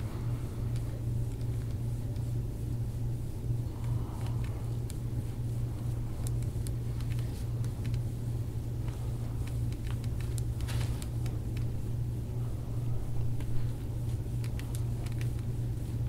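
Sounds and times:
low hum with rumble: 0.0 - 16.0.

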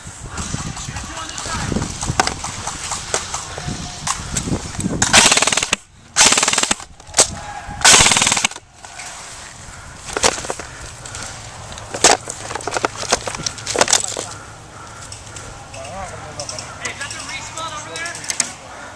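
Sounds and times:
airsoft rifle automatic bursts: 5.1 - 6.9, 7.9 - 8.6.

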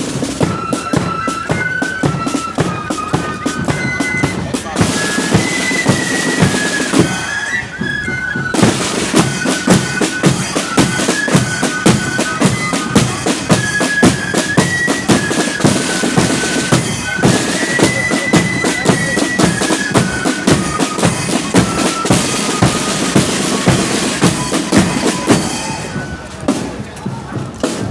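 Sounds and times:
flutes playing melody: 0.0 - 27.4
side drums rattling: 8.4 - 27.9.

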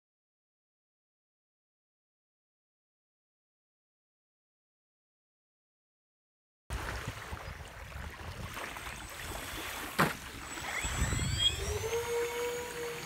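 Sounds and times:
water: 6.7 - 13.0
wind: 6.7 - 13.0
model plane motors whining: 8.6 - 13.0.

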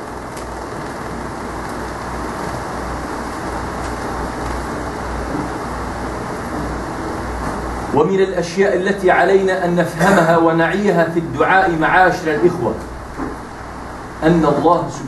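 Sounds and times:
electric fan running: 0.0 - 15.0.

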